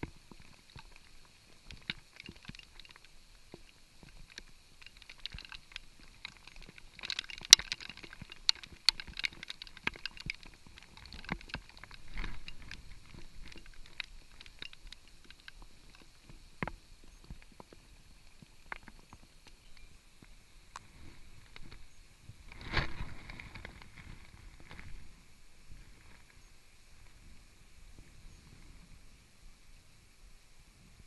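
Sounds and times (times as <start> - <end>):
raindrops ticking on camera housing: 0.0 - 25.2
faint rain hiss: 0.0 - 31.0.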